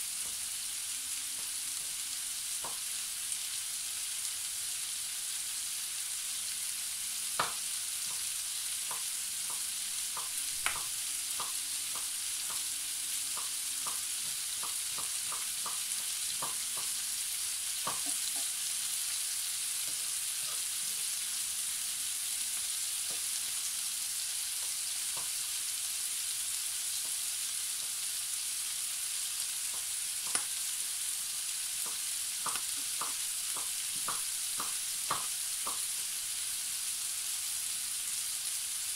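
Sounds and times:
vegetables sizzling in hot fat: 0.0 - 38.9
sharp pops and crackles: 8.9 - 12.6, 30.2 - 30.6, 31.8 - 35.9.

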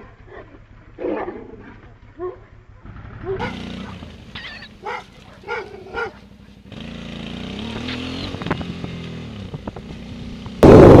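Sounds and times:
dog barking: 0.0 - 1.6, 2.2 - 2.6, 3.2 - 6.6
motorcycle engine running: 2.5 - 11.0.

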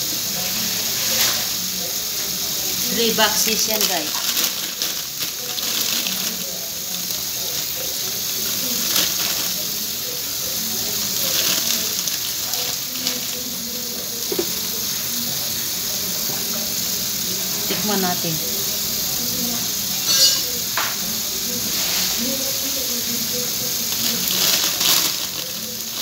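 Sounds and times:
plastic bag rustling: 2.8 - 9.9, 10.8 - 14.4, 23.8 - 26.0
tap running into steel sink: 14.3 - 14.5.

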